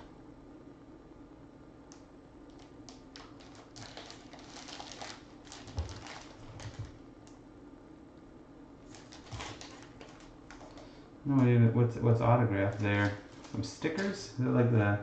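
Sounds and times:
plastic bag crackling: 2.5s - 7.0s, 8.8s - 10.9s, 12.6s - 14.2s.

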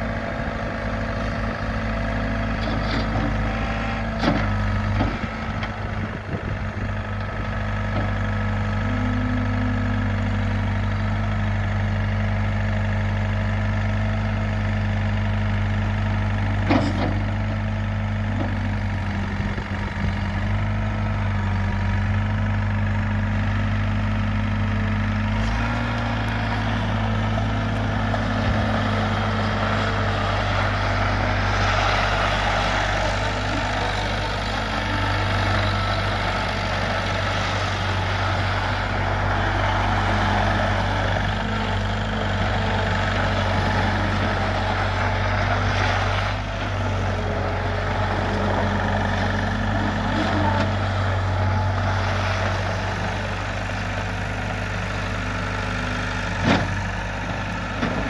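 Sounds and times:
skid steer engine running: 0.0s - 58.0s
tyres crunching on gravel: 25.4s - 54.1s.

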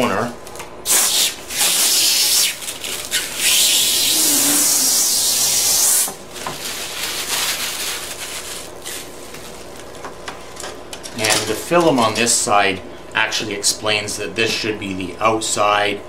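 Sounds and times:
plastic film peeling off: 0.9s - 5.0s, 5.7s - 10.0s.

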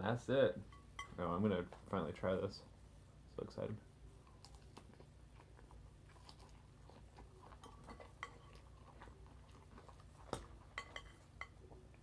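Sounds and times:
chewing salad: 4.2s - 12.0s.

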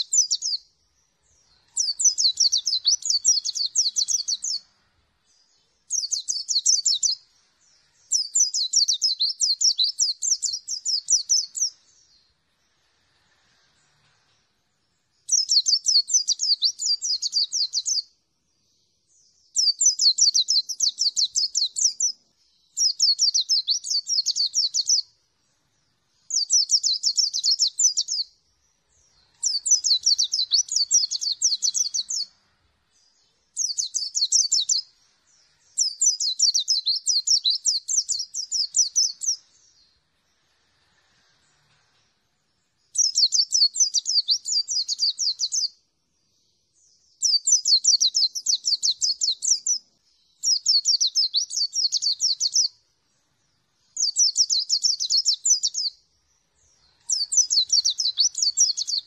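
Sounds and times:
bird twittering: 1.2s - 4.7s, 5.3s - 7.2s, 8.0s - 12.2s, 19.6s - 25.1s, 28.9s - 32.4s, 35.8s - 39.8s, 42.9s - 45.7s, 50.4s - 52.8s, 56.6s - 59.0s.

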